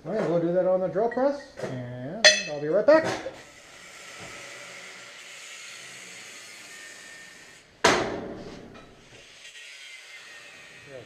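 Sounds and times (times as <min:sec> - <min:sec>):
sharp metal strike ringing: 0:02.3 - 0:02.6.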